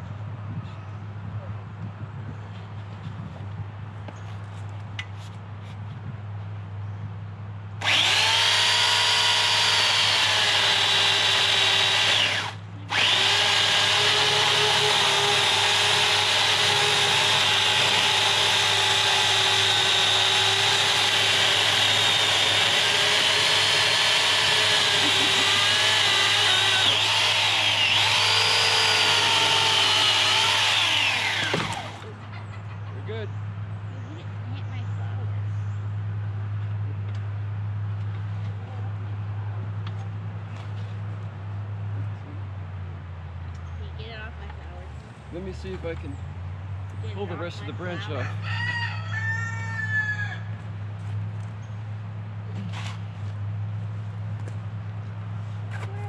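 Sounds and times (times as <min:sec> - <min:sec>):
electric chainsaw cutting branch: 0:07.8 - 0:32.2.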